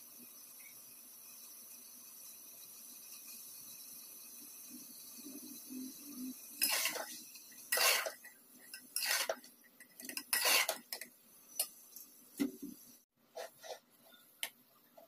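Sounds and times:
metal spatula scraping a pot: 0:05.2 - 0:12.1, 0:13.4 - 0:14.3.

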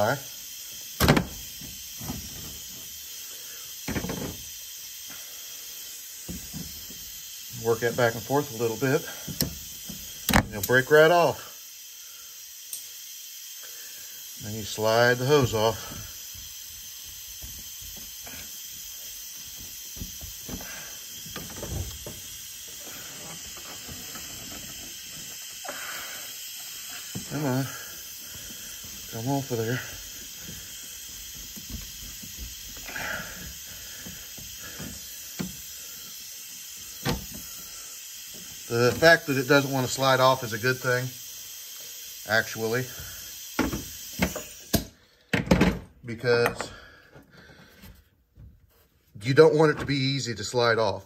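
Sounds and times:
steady hiss: 0:00.0 - 0:51.0
pliers clicking and scraping on hose: 0:12.7 - 0:12.9.

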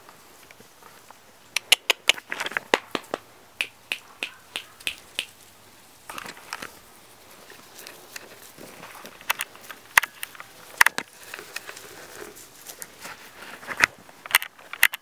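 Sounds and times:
sharp clicks: 0:01.6 - 0:05.4
puppies yipping: 0:03.9 - 0:05.3
puppy yelping: 0:04.2 - 0:05.0.

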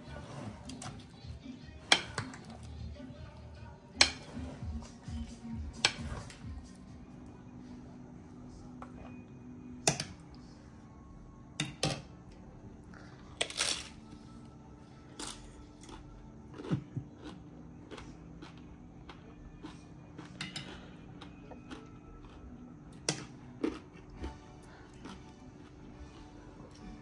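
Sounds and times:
faint background music: 0:00.0 - 0:27.0
dishes and utensils clinking: 0:01.8 - 0:02.7, 0:03.9 - 0:04.8, 0:20.3 - 0:20.9.

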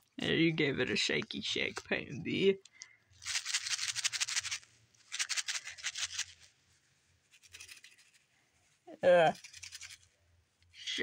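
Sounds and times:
glitter rattling in badge: 0:02.6 - 0:06.5, 0:07.3 - 0:08.3, 0:09.3 - 0:10.2.

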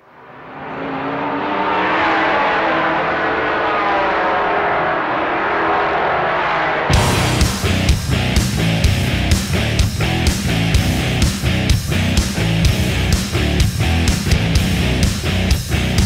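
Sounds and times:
race car engine: 0:00.0 - 0:16.0
heavy rock music with electric guitar: 0:06.9 - 0:16.0.

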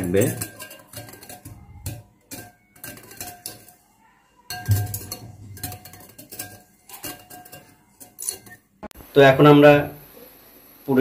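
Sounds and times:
whisk clinking against glass bowl: 0:00.0 - 0:03.8, 0:04.4 - 0:08.7.

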